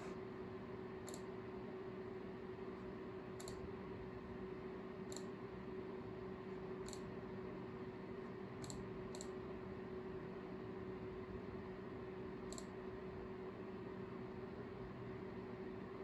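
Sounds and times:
steady low hum: 0:00.0 - 0:16.0
computer mouse clicking: 0:01.1 - 0:01.3, 0:03.4 - 0:03.6, 0:05.1 - 0:05.3, 0:06.8 - 0:07.1, 0:08.6 - 0:09.4, 0:12.5 - 0:12.7.

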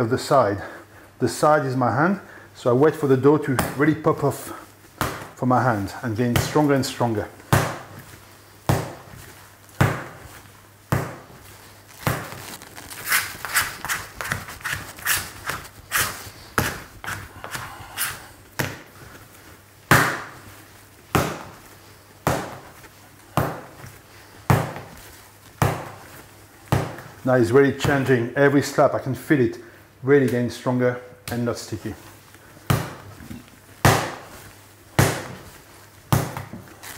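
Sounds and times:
sticky dough smacks: 0:04.9 - 0:05.4, 0:06.2 - 0:19.1, 0:19.9 - 0:27.2, 0:32.6 - 0:36.9
dough slapped on wooden table: 0:07.5 - 0:08.1, 0:08.7 - 0:09.2, 0:19.9 - 0:20.4, 0:25.6 - 0:26.0, 0:33.8 - 0:34.3, 0:35.0 - 0:35.5, 0:36.1 - 0:36.7.

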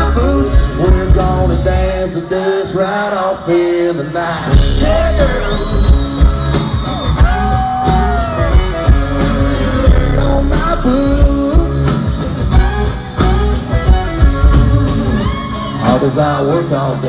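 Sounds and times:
steady drum beat: 0:00.0 - 0:02.0, 0:04.5 - 0:17.0
bass: 0:00.0 - 0:03.3, 0:04.5 - 0:17.0
live country band playing: 0:00.0 - 0:17.0
sliding bending lead notes: 0:07.4 - 0:15.6.

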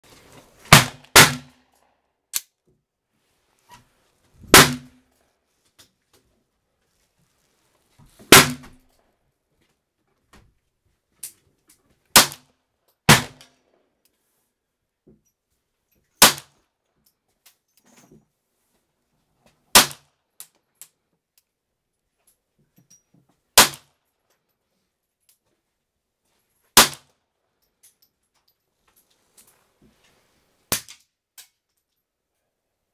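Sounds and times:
gunshots: 0:00.7 - 0:01.5, 0:04.5 - 0:04.9, 0:08.3 - 0:08.7, 0:13.1 - 0:13.4
pistol shots with echo: 0:00.7 - 0:01.5, 0:04.5 - 0:04.9, 0:13.1 - 0:13.4.

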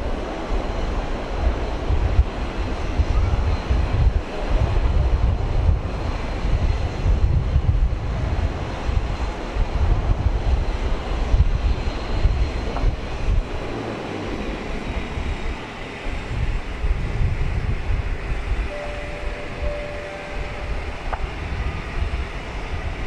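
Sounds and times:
distant jet engines humming: 0:00.0 - 0:23.0
high engine whine: 0:00.0 - 0:23.0
wind buffeting microphone: 0:00.0 - 0:23.0.

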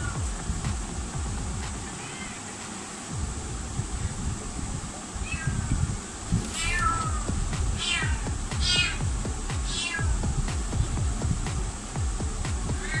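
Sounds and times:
cat meowing: 0:01.9 - 0:02.6, 0:05.2 - 0:05.7, 0:06.6 - 0:09.0, 0:09.7 - 0:10.2, 0:12.8 - 0:13.0.

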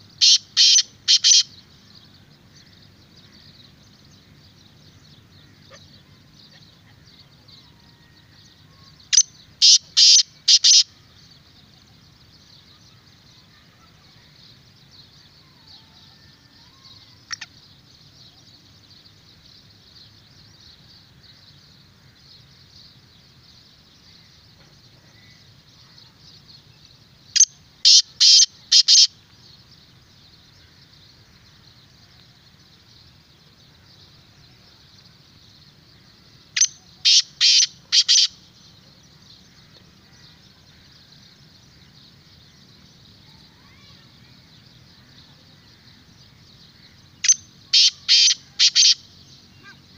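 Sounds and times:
faint high hiss: 0:00.0 - 0:49.9
bird calling harsh notes: 0:00.2 - 0:01.5, 0:09.1 - 0:10.8, 0:27.4 - 0:29.1, 0:36.6 - 0:38.4, 0:47.2 - 0:49.8.

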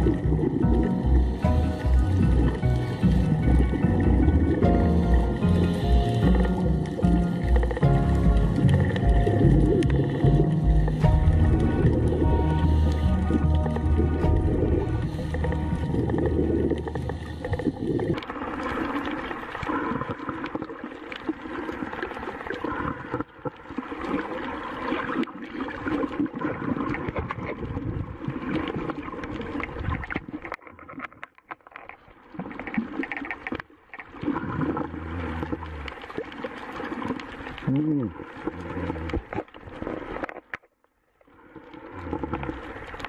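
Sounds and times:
background music: 0:00.0 - 0:17.9
crackling clicks underwater: 0:00.0 - 0:43.0
underwater rushing and gurgling: 0:00.0 - 0:43.0.

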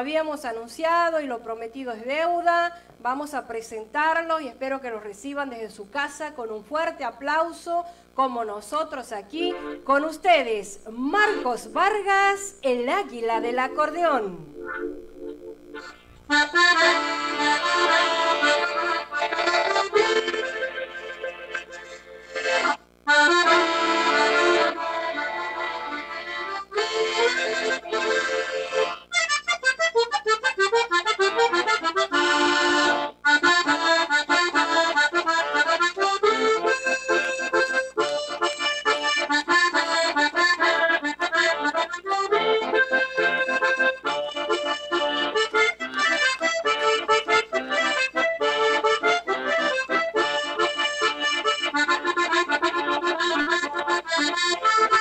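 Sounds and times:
accordion playing: 0:09.3 - 0:55.0.

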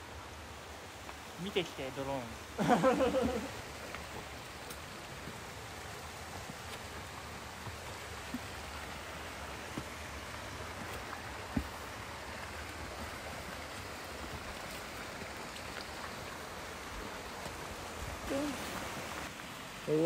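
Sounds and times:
mountain stream rushing: 0:00.0 - 0:20.0.

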